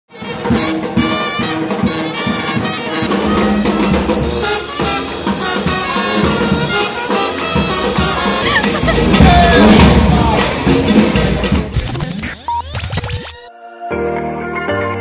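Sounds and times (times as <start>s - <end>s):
brass band playing jazz: 0.1s - 11.8s.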